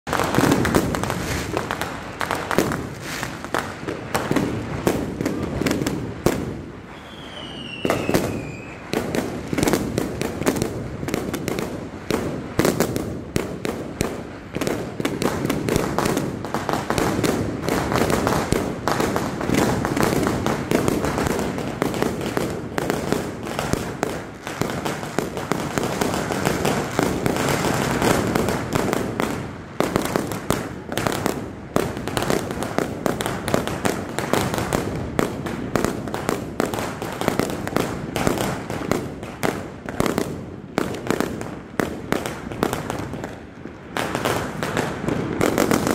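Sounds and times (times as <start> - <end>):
fireworks bangs and crackling: 0.0 - 45.9
firework whistle falling in pitch: 6.9 - 8.9.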